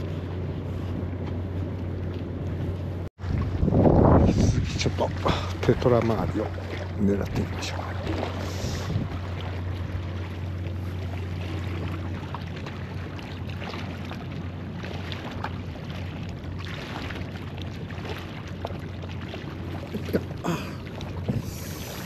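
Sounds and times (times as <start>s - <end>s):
wind noise on microphone: 3.2s - 5.0s, 8.5s - 9.2s, 21.2s - 22.0s.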